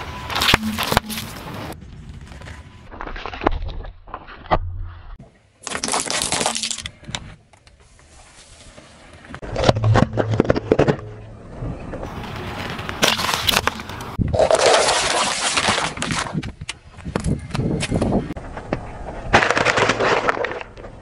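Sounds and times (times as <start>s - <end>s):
car tyre rolling on asphalt: 8.0s - 14.2s.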